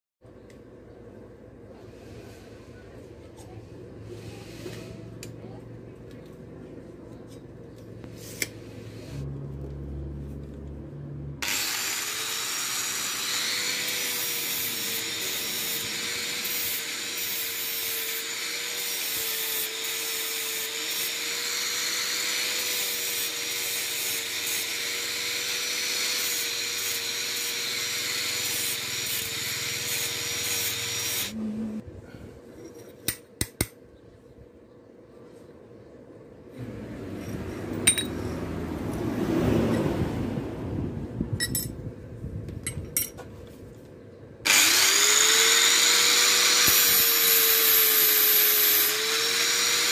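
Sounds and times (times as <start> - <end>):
angle grinder cutting steel: 11.4 - 31.4, 44.5 - 49.9
sharp metal clinks: 41.4 - 41.8.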